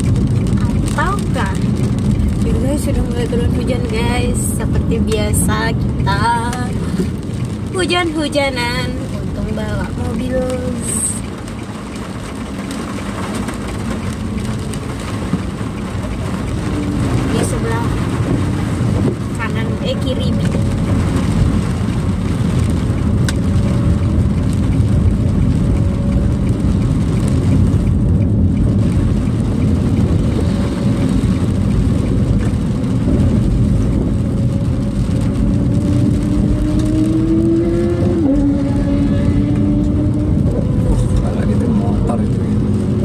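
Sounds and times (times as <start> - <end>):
car engine inside cabin: 0.0 - 43.0
road rumble: 0.0 - 43.0.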